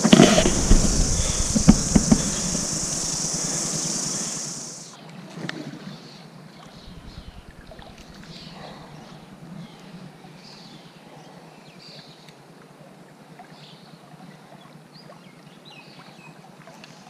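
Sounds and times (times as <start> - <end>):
handling knocks: 0.0 - 4.3
faint rustles: 0.0 - 4.8
high-pitched insect chorus: 0.0 - 4.9.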